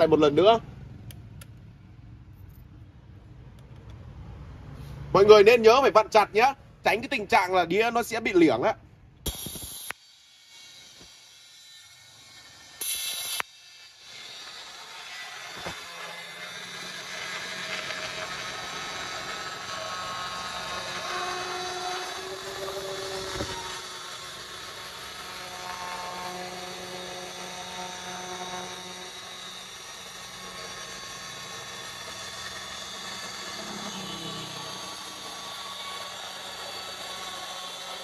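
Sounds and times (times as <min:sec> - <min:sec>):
electric tile cutter cutting tile: 0:09.3 - 0:38.0.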